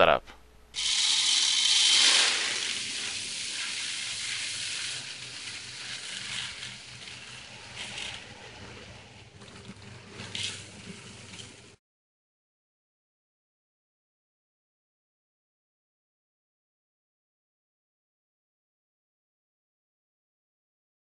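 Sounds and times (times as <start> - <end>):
grain pouring into plastic bucket: 0.8 - 11.8.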